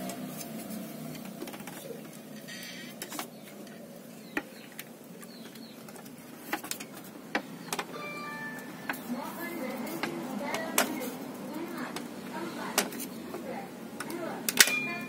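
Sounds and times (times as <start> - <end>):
high chirping: 7.5 - 9.8.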